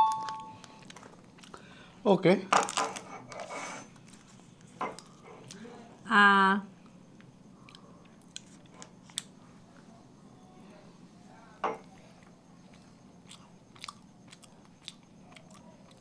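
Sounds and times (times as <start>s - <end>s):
person chewing pastry: 0.3s - 1.6s, 2.9s - 5.6s, 6.8s - 9.8s, 11.8s - 16.0s.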